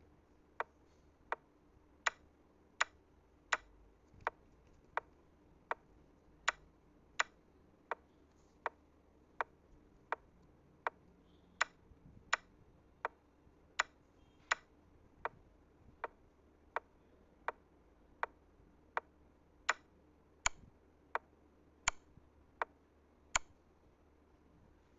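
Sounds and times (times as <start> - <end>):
clock ticking: 2.8 - 3.8, 6.4 - 8.0.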